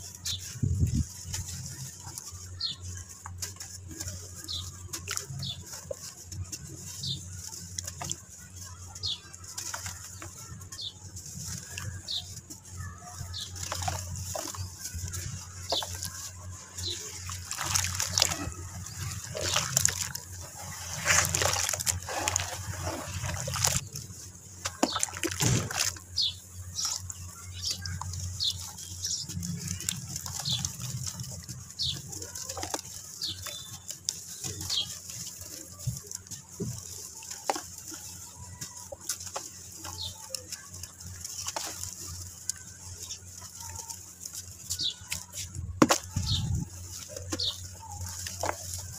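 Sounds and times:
gritty crackles: 0.0s - 48.9s
wet dirt squishing in hands: 0.0s - 48.9s
water splashes and drips: 17.2s - 23.9s, 24.7s - 26.0s.

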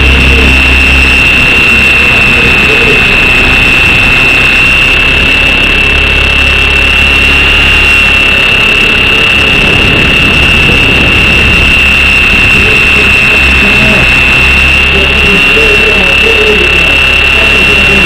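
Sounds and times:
high-pitched whine: 0.0s - 18.0s
rc helicopter rotor rushing: 0.0s - 18.0s.

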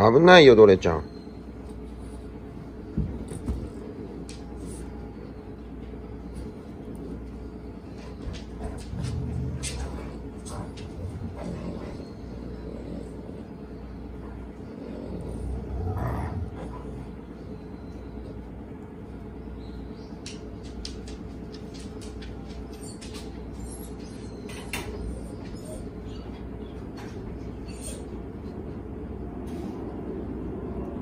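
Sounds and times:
steady low hum: 0.0s - 31.0s
dog claws clicking on wooden floor: 20.2s - 23.4s.

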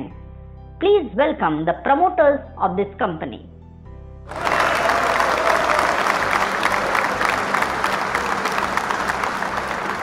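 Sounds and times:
audience applauding: 4.3s - 10.0s.

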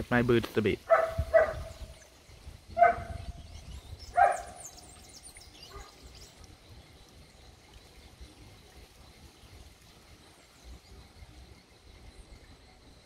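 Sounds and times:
small birds chirping: 0.0s - 13.0s
dog barking: 0.9s - 1.7s, 2.8s - 3.2s, 4.2s - 4.6s.

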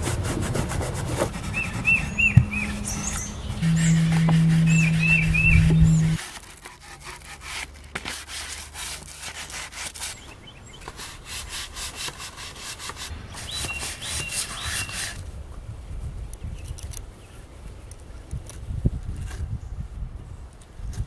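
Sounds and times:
hand rubbing wooden frame: 0.0s - 15.2s
bird chirping: 1.3s - 6.2s, 10.1s - 10.9s, 13.1s - 15.0s.

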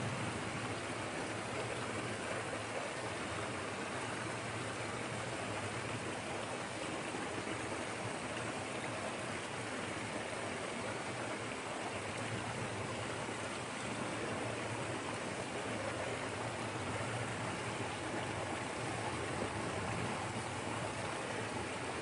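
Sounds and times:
small waterfall rushing: 0.0s - 22.0s.

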